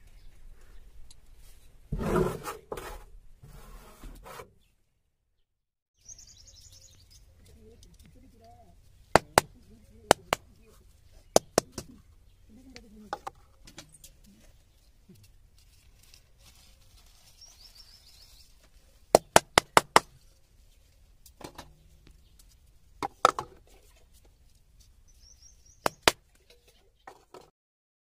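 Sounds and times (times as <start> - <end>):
faint bird chirps: 6.0 - 15.2, 16.6 - 19.1, 25.1 - 27.1
coconut shells knocking: 9.2 - 10.5, 11.4 - 12.0, 19.1 - 20.1, 23.0 - 23.6, 25.8 - 26.2.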